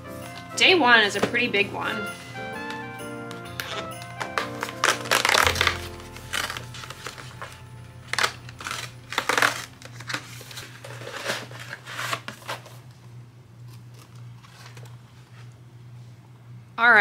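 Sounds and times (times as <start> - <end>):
cardboard scraping and rustling: 3.6 - 12.8
paper flap pulled open: 4.5 - 12.7.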